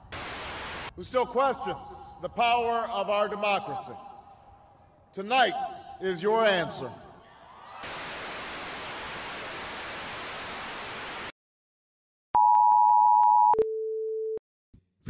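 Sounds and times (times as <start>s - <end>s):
television static hiss: 0.0s - 0.9s, 7.8s - 11.3s.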